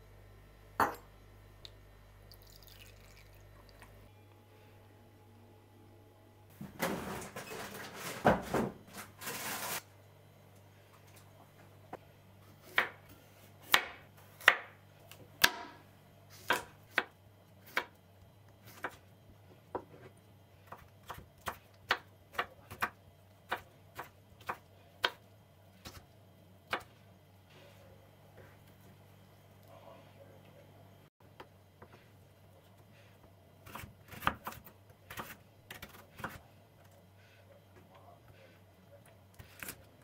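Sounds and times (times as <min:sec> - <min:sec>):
scraping and rustling: 0:06.6 - 0:09.8
knife chopping on cutting board: 0:13.6 - 0:14.8, 0:16.4 - 0:17.9, 0:33.7 - 0:36.4.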